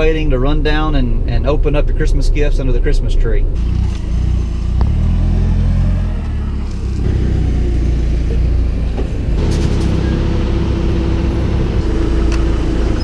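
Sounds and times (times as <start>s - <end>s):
engine low rumble: 0.0s - 13.0s
steady whine: 6.2s - 13.0s.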